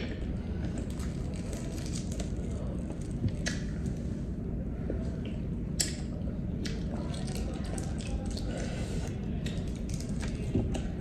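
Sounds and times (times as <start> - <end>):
wet mouth sounds: 3.4 - 3.7
eggshell crackling while peeled: 9.4 - 10.4.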